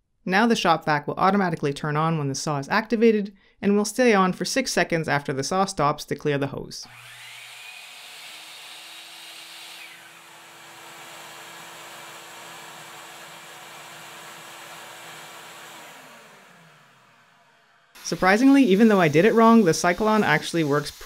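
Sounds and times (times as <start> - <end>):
miter saw running: 6.8 - 21.0
shop vac rushing hiss: 18.0 - 21.0.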